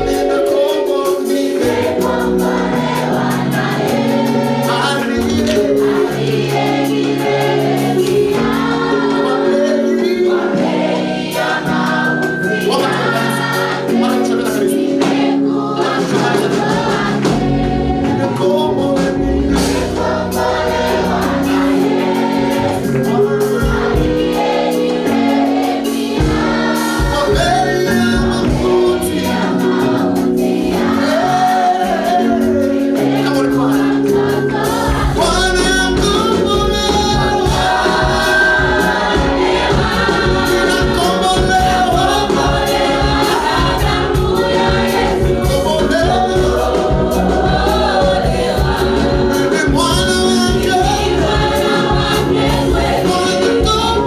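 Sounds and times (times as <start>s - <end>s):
man singing lead: 0.0s - 2.2s, 4.6s - 6.3s, 9.1s - 10.7s, 12.1s - 15.1s, 18.1s - 19.9s, 27.0s - 29.6s, 31.0s - 34.4s, 35.1s - 39.3s, 40.4s - 43.4s, 45.2s - 47.2s, 49.2s - 52.3s, 53.0s - 54.0s
instrumental accompaniment: 0.0s - 54.0s
women singing: 33.2s - 54.0s.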